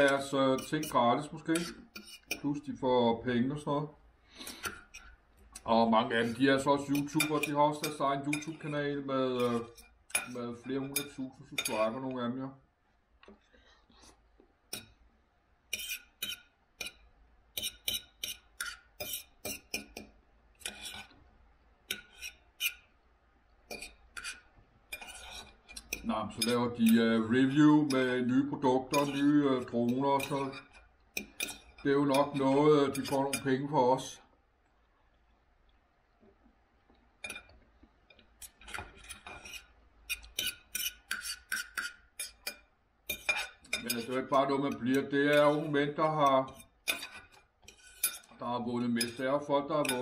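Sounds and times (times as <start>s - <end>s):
cutlery clinking and scraping on plate: 0.0s - 2.6s, 4.5s - 8.8s, 9.4s - 12.0s, 15.7s - 21.2s, 21.9s - 22.9s, 23.7s - 28.2s, 28.8s - 33.6s, 37.2s - 50.0s.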